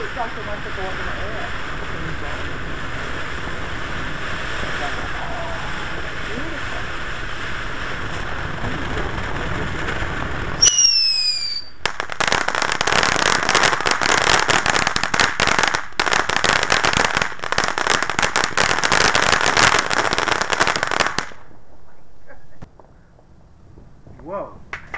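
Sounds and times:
fireworks hissing: 0:00.0 - 0:24.7
fireworks crackling: 0:00.0 - 0:24.9
falling whistle: 0:10.6 - 0:11.8.

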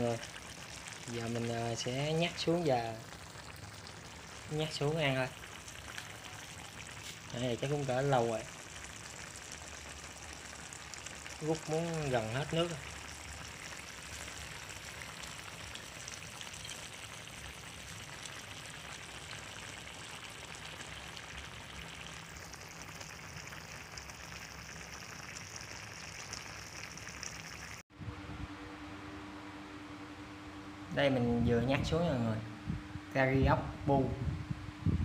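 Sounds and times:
curry sizzling and bubbling in wok: 0:00.0 - 0:27.8
steady hum: 0:28.0 - 0:35.0.

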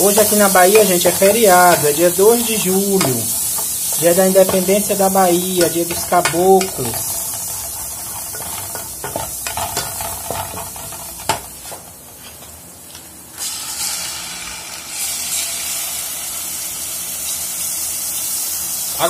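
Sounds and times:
oil sizzling in a pot: 0:00.0 - 0:12.3, 0:13.3 - 0:19.0
wooden spoon tapping a pot: 0:00.6 - 0:04.9, 0:05.5 - 0:07.1, 0:08.3 - 0:11.5.

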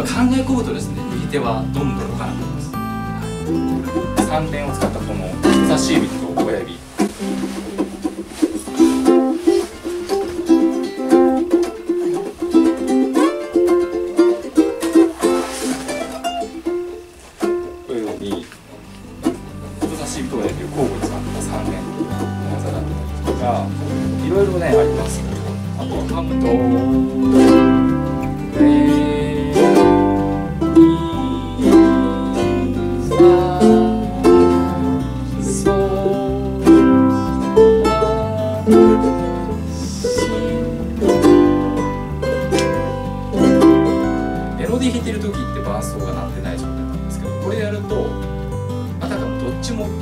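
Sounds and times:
low bass line: 0:00.0 - 0:08.3, 0:18.8 - 0:50.0
fingerstyle ukulele: 0:00.0 - 0:50.0.

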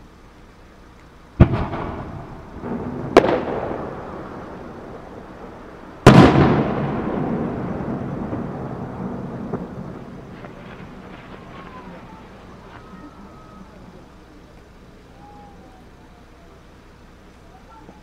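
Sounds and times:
firework booms: 0:01.4 - 0:14.0
rolling echo: 0:01.4 - 0:18.0.

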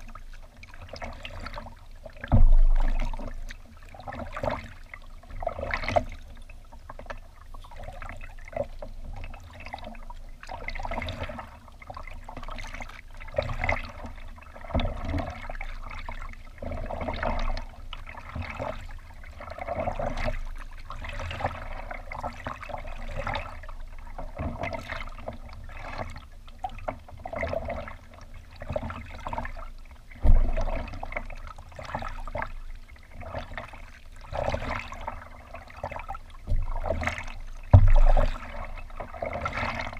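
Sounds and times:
paddle splashing water: 0:00.0 - 0:39.9
sharp low thump: 0:02.3 - 0:03.2, 0:30.2 - 0:30.7.

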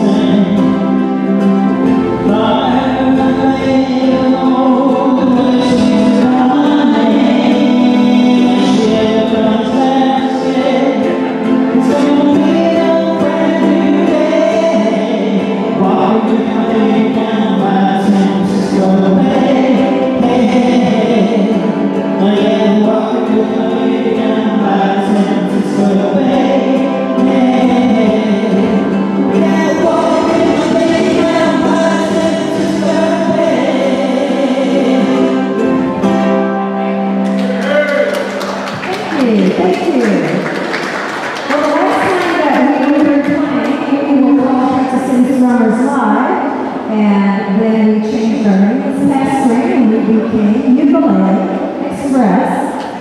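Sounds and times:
voices singing together: 0:00.0 - 0:38.5
acoustic guitar: 0:00.0 - 0:53.0.

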